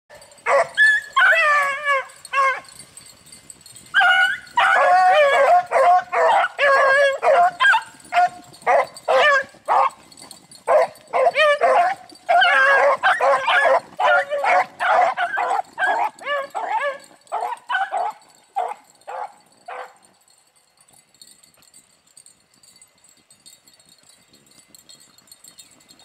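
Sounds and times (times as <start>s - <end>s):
dogs barking: 0.1s - 2.8s, 3.9s - 20.0s
dogs baying and howling: 0.1s - 3.1s, 3.8s - 20.0s.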